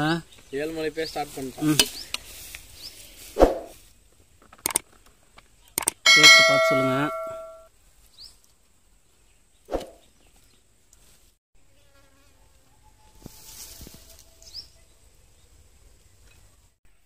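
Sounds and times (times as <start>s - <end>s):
light clinks: 6.1s - 7.6s
spoon knocking steel vessel: 6.1s - 7.6s
faint insect buzz: 11.6s - 14.8s.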